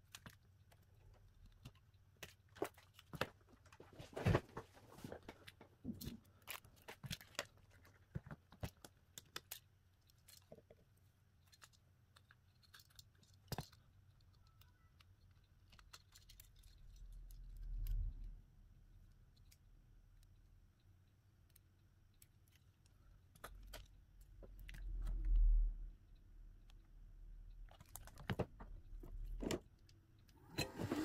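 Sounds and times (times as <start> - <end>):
small tools clicking and tapping: 5.4 - 18.1, 19.0 - 25.2.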